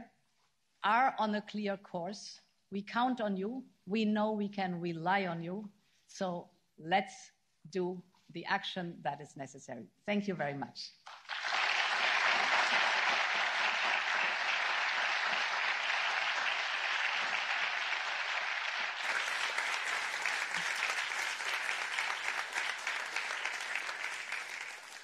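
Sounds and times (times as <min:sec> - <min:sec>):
audience applauding: 0:11.1 - 0:25.0.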